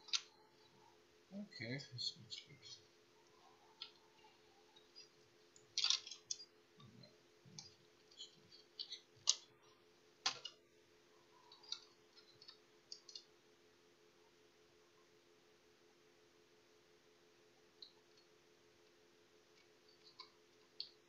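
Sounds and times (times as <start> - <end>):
light clicks and taps handling plastic: 10.2 - 10.6.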